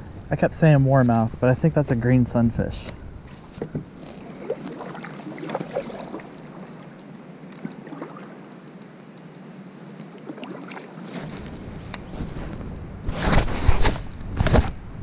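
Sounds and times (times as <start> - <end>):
water lapping around a boat: 3.2 - 9.2, 9.9 - 13.0.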